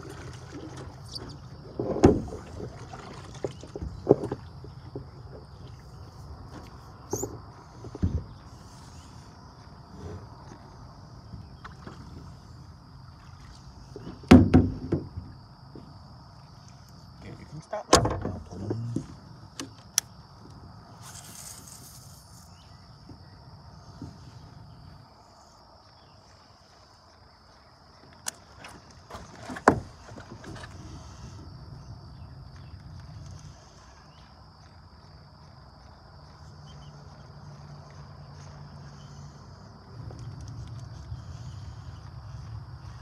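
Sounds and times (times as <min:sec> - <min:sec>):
high-pitched insect drone: 0:20.8 - 0:23.4.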